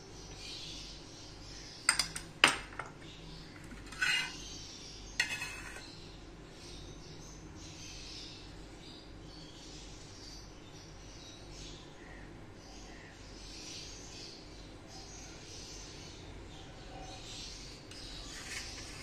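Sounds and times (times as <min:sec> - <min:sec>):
faint room hum: 0:00.0 - 0:19.0
metal spoon clinking on dishes: 0:01.9 - 0:03.0, 0:03.7 - 0:04.4, 0:05.2 - 0:05.9.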